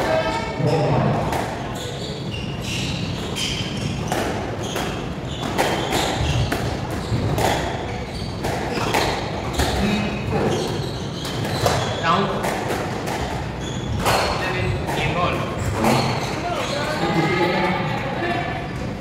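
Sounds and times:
shoes squeaking on wooden floor: 0.1 - 12.1, 13.4 - 17.9
squash ball impacts: 3.1 - 16.3.

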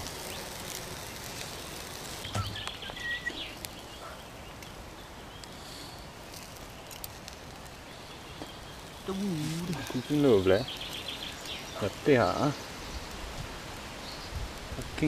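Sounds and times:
sausages sizzling on a grill: 0.0 - 15.0.

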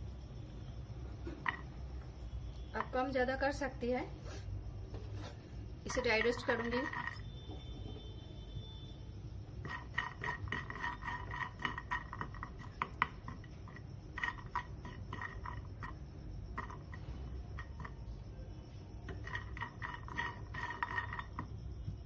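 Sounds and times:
nuts stirred in a frying pan: 5.9 - 7.3, 9.5 - 18.0, 19.1 - 21.8.

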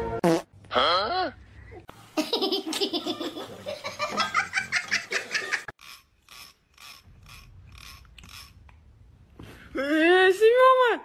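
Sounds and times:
laughter in quick pulses: 2.2 - 5.7.

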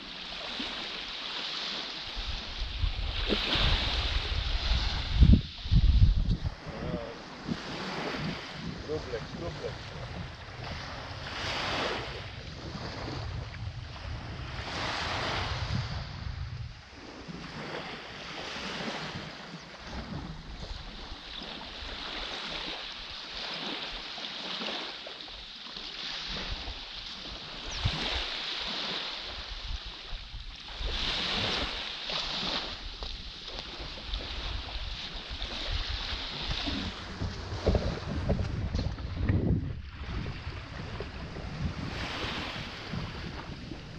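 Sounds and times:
small waves washing onto beach: 0.0 - 43.9
wind buffeting microphone: 2.1 - 21.2, 32.4 - 43.9.

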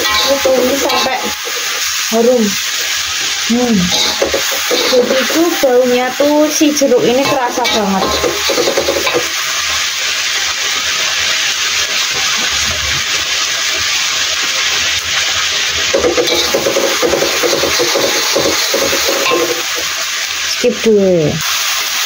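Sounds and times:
metal spatula scraping a wok: 0.0 - 2.1, 3.9 - 6.0, 6.9 - 9.4, 16.0 - 19.9
spice paste sizzling in a wok: 0.0 - 22.0.

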